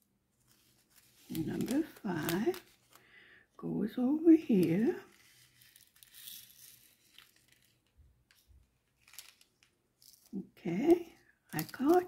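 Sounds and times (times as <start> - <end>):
small beads shifting: 4.6 - 10.4.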